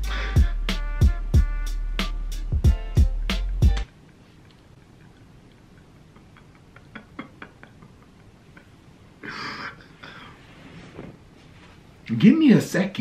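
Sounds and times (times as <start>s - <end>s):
man sniffling while crying: 0.0s - 0.5s.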